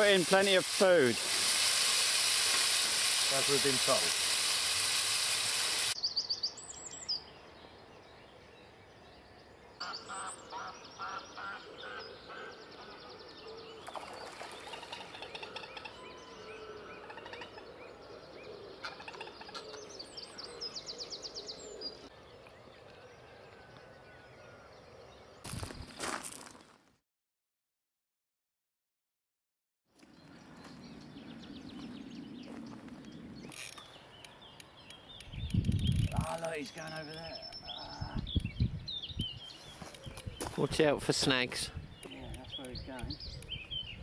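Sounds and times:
food sizzling in a pan: 0.0 - 6.0
birds trilling and chirping: 0.0 - 26.2, 30.1 - 44.0
sharp clicks: 33.5 - 37.6.

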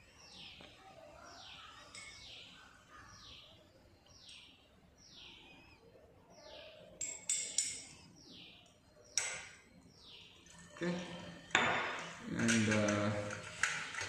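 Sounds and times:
glass test tubes clinking: 1.9 - 2.3, 7.0 - 8.0, 10.4 - 14.0.

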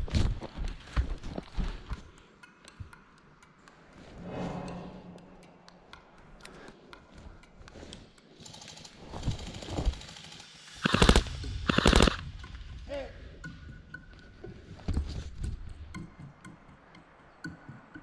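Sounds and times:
faint scattered clicks: 1.3 - 4.2, 5.2 - 14.2
rapid airsoft gunfire: 8.5 - 12.2.

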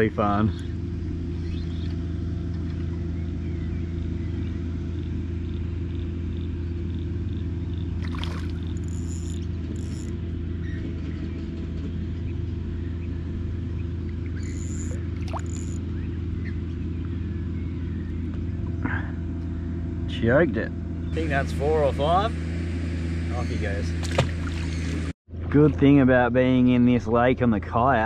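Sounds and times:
fish splashing at water surface: 8.0 - 8.8.

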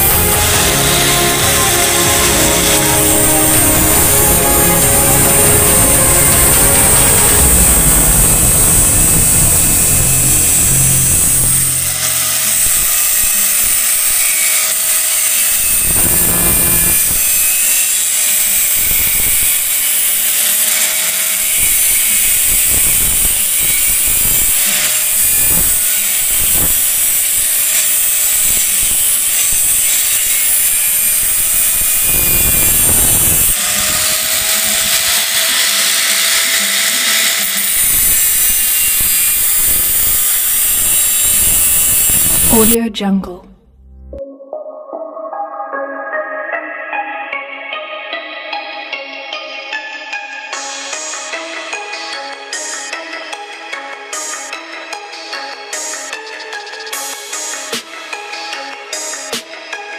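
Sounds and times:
angle grinder cutting steel: 0.0 - 42.8.

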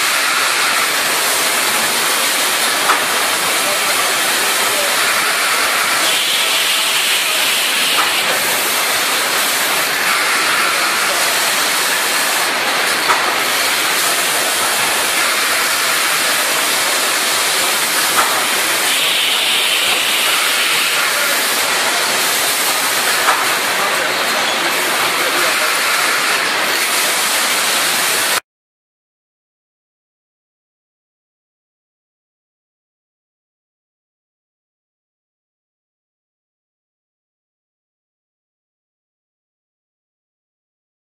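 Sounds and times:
baling machine hissing: 0.0 - 28.4.

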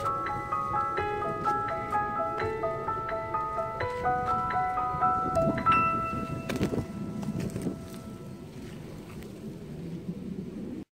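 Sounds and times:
gentle melody of struck notes: 0.0 - 8.7.

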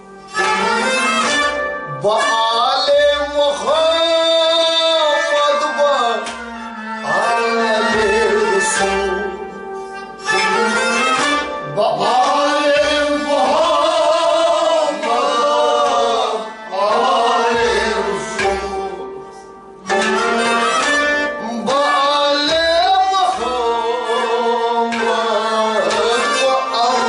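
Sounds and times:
bowed string instrument: 0.0 - 27.0
voices singing: 10.3 - 19.0, 19.9 - 27.0.

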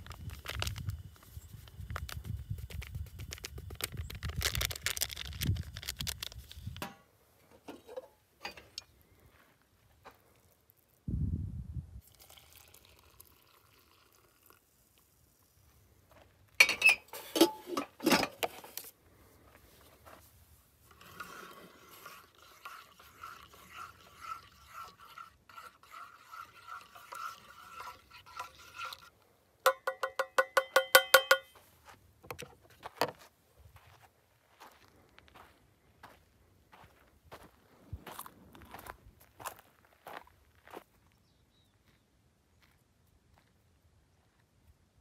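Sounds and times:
metal spoon stirring in metal mug: 20.9 - 29.1, 29.7 - 31.5
cookware clanking: 29.7 - 31.5
ringing taps on metal: 29.7 - 31.6.

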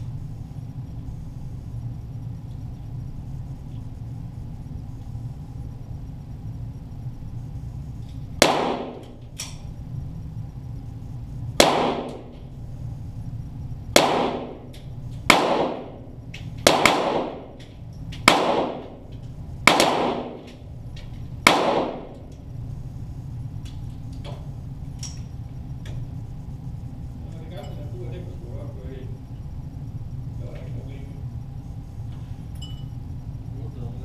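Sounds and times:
steady low hum: 0.0 - 34.0
pistol shots echoing: 8.4 - 9.2, 11.6 - 12.4, 14.0 - 14.7, 15.3 - 17.6, 18.2 - 19.0, 19.6 - 20.5, 21.4 - 22.2.

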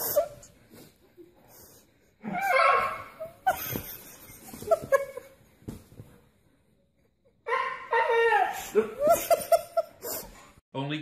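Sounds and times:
dog howling and whining: 2.2 - 3.5, 7.5 - 9.1.

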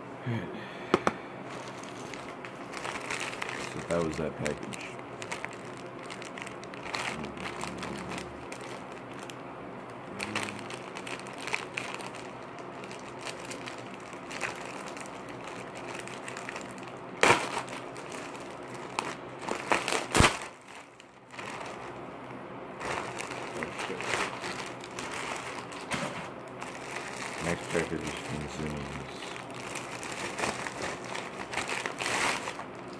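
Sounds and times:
packaging crinkling and rustling: 1.5 - 9.4, 10.0 - 22.0, 22.8 - 32.9
loud sharp cracks: 17.2 - 17.7, 19.8 - 20.5.

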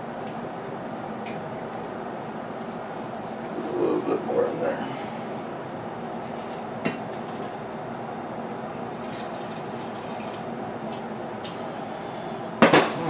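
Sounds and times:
liquid trickling into a pot: 8.9 - 10.6.

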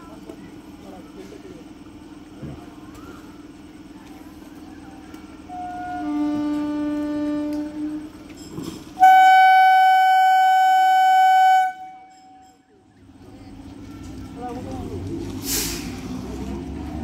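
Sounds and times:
train horn blast: 5.5 - 8.2, 9.0 - 12.4.

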